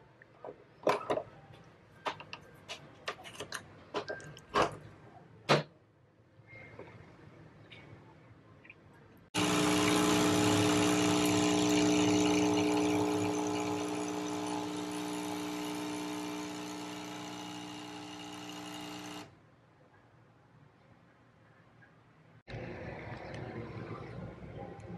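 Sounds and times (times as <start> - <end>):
coffee machine pump buzzing: 9.4 - 19.3.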